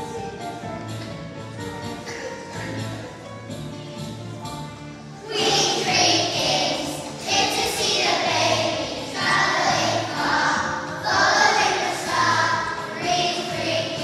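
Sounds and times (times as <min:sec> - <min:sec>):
musical accompaniment: 0:00.0 - 0:14.0
children singing: 0:05.2 - 0:14.0.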